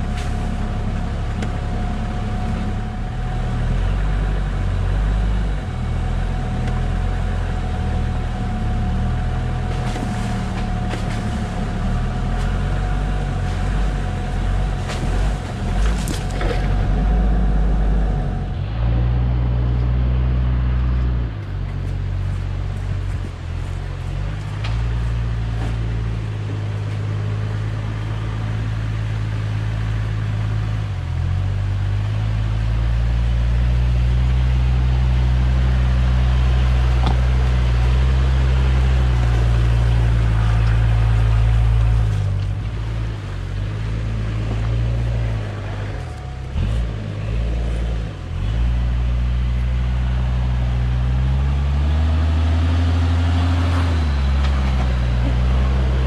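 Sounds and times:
diesel engine running at low revs: 0:00.0 - 0:56.0.

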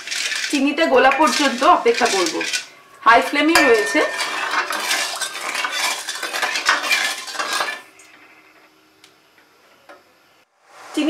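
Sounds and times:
ladle stirring and scraping pan: 0:00.0 - 0:08.0.

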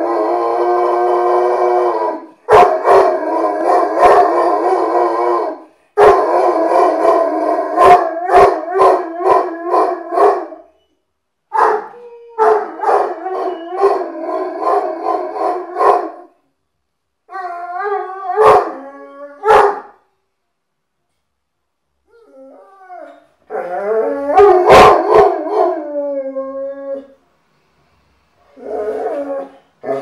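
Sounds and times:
dog howling: 0:00.0 - 0:10.6, 0:11.8 - 0:16.3, 0:22.2 - 0:27.1, 0:28.5 - 0:30.0.

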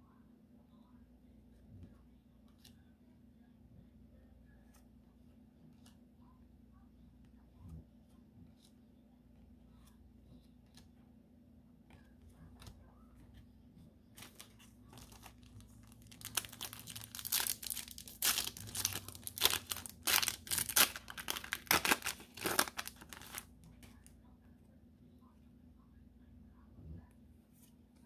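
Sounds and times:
wrapper tearing and crinkling: 0:14.2 - 0:23.5.

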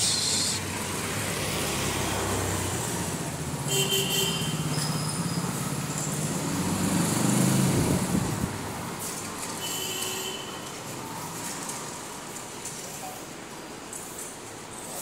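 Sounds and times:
vehicle engine humming: 0:00.0 - 0:03.6.

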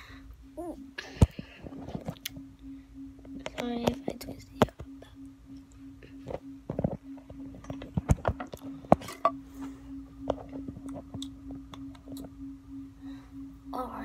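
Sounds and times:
low hum: 0:00.0 - 0:14.0
phone handling knocks and clicks: 0:06.2 - 0:09.4.

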